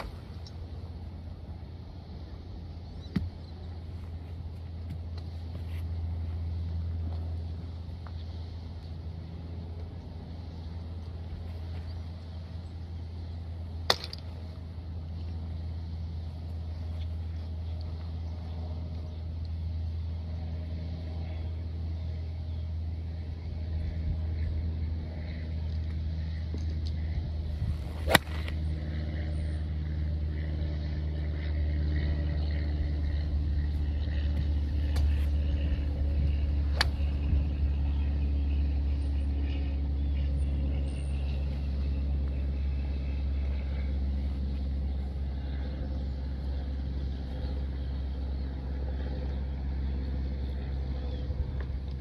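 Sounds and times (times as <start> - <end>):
steady low rumble: 0.0 - 52.0
golf club striking ball: 13.9 - 14.3, 27.8 - 28.7, 36.6 - 37.4.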